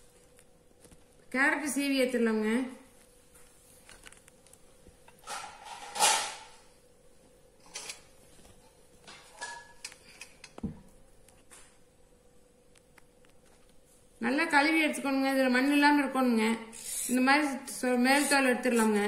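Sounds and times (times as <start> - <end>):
faint steady hum: 0.0 - 19.0
kitchen items knocking and clicking: 5.1 - 6.6.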